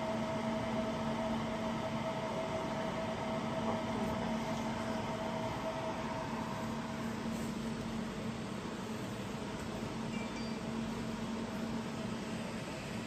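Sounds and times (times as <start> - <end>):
machine cooling fan hum: 0.0 - 13.0.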